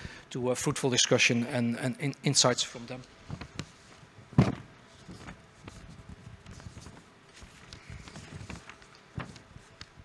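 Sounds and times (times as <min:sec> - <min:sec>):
papers rustling near microphone: 0:03.0 - 0:10.0
microphone handling thump: 0:04.3 - 0:05.4.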